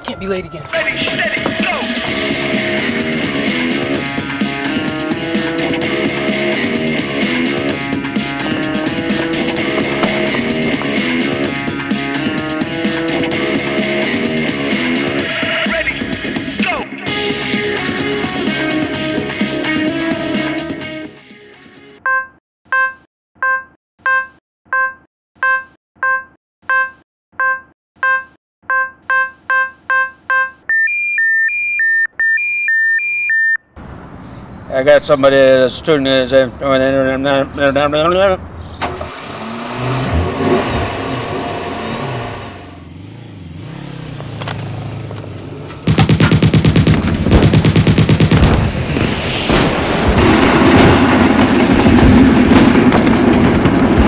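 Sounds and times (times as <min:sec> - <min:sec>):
low hum: 0:00.8 - 0:14.5
electronic tracking beeps: 0:22.1 - 0:33.6
gunfire-like bangs: 0:45.8 - 0:54.0
explosion blast with crackling: 0:45.9 - 0:54.0.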